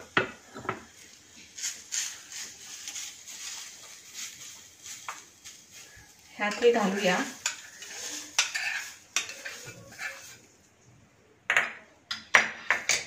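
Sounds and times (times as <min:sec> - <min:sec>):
metal spoon scraping a pan: 0:01.6 - 0:10.5.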